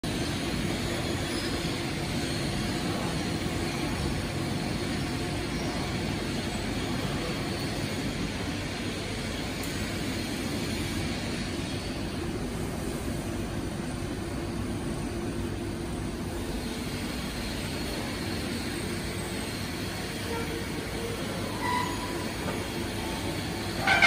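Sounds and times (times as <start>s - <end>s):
factory machinery drone: 0.0s - 24.0s.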